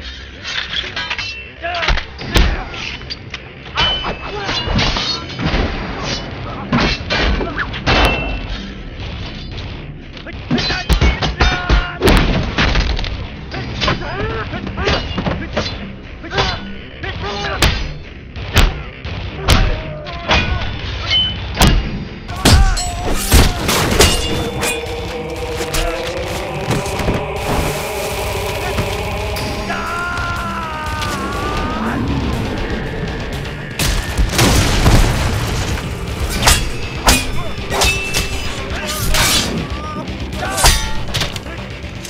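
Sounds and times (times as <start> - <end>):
film score: 0.0 - 42.0
sustained musical drone: 22.0 - 42.0
shouts and grunts: 22.3 - 33.0
sharp hits and heavy thuds: 31.0 - 39.5.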